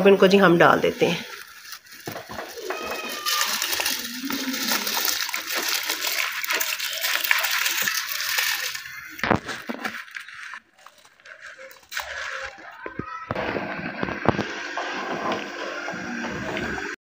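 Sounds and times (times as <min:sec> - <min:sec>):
rice pouring into water: 0:01.1 - 0:13.0.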